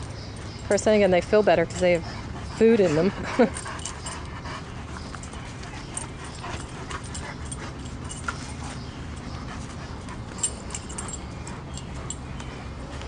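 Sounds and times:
dogs scuffling at play: 0.0 - 13.0.

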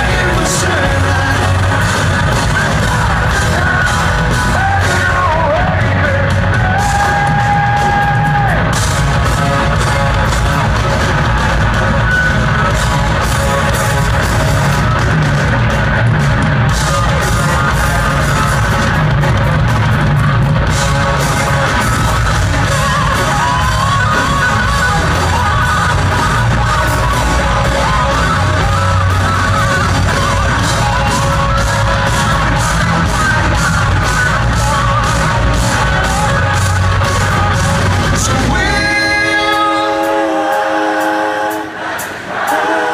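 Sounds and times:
live rock band playing: 0.0 - 42.9.

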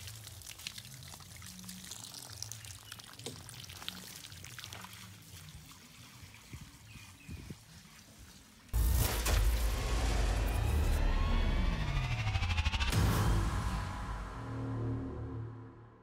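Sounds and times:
water dripping: 0.0 - 6.0
water pouring onto plants: 0.0 - 8.8.

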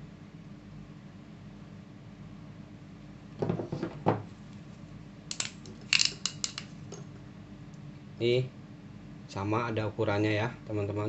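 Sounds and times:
soft knocks on tabletop: 3.4 - 4.3
metallic clicks and clinks: 5.3 - 6.7.

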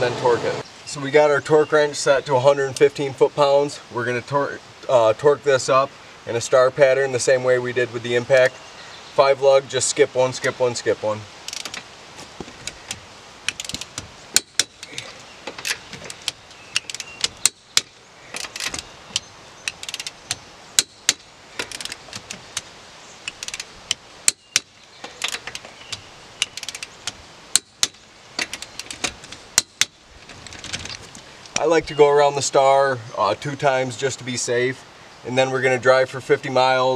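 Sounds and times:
torque wrench ratcheting clicks: 11.5 - 11.8, 12.9 - 31.0.

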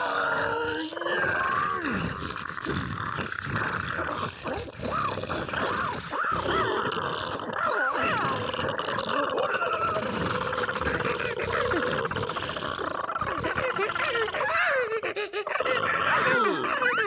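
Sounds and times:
layered creature vocalisations: 0.0 - 17.0.

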